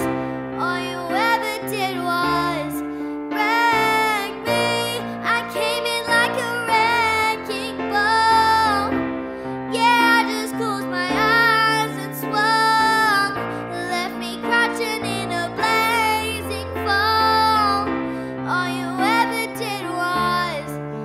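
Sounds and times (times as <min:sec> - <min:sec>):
girl singing pop song: 0:00.0 - 0:21.0.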